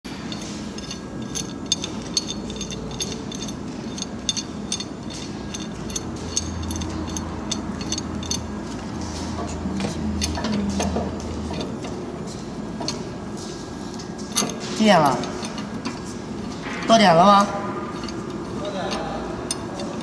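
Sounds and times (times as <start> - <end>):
steel tools clinking: 0.1 - 11.8, 14.2 - 16.0, 17.9 - 20.0
low machine hum: 0.1 - 20.0.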